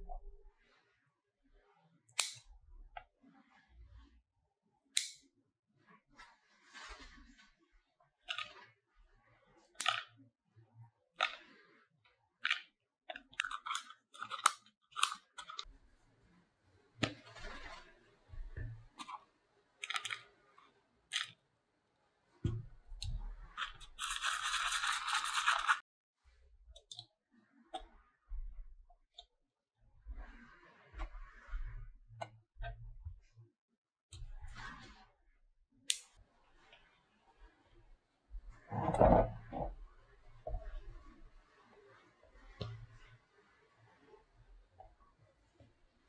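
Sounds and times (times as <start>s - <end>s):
small containers clicking: 12.4s - 15.6s, 19.8s - 20.2s, 23.6s - 25.8s.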